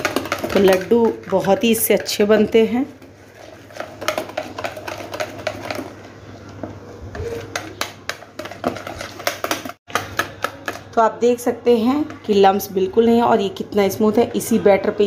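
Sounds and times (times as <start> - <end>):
whisk clicking against bowl: 0.0 - 2.6, 3.6 - 5.9.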